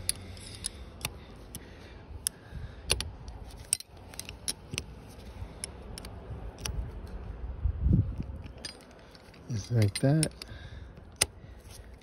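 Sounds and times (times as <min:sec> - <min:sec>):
metal wrenches clicking: 0:00.0 - 0:01.2, 0:02.2 - 0:06.8, 0:08.2 - 0:12.0.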